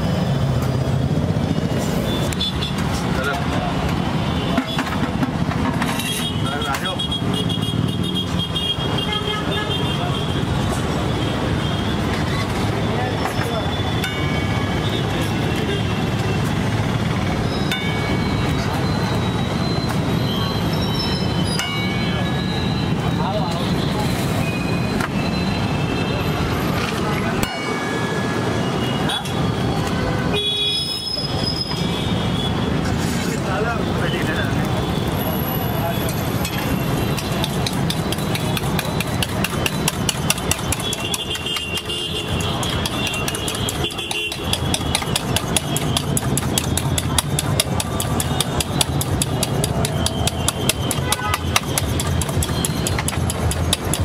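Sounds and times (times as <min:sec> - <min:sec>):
spoon beating eggs in steel bowl: 0:36.6 - 0:54.0.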